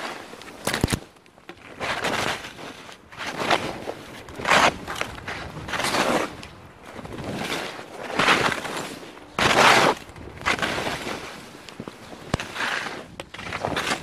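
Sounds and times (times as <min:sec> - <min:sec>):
skis carving on snow: 0:00.0 - 0:00.6, 0:01.6 - 0:14.0.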